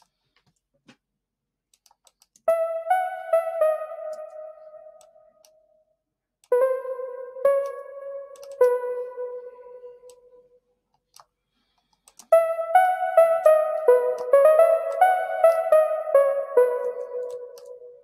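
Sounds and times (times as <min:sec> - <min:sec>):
synthesizer notes: 0:02.5 - 0:05.3, 0:06.5 - 0:10.4, 0:12.3 - 0:18.0.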